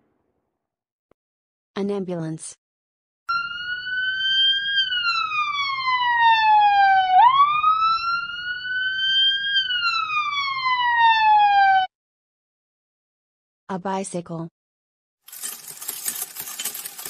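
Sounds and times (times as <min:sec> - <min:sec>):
ambulance siren wailing: 0:03.3 - 0:11.9.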